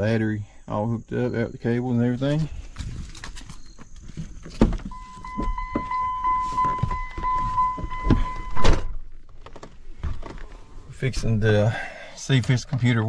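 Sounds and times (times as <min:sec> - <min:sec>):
electronic warning chime: 0:01.1 - 0:02.4, 0:04.9 - 0:08.8
knocks and shuffles: 0:02.2 - 0:11.6
car door unlatching with clunk: 0:04.5 - 0:10.4
car door slamming: 0:04.6 - 0:09.1.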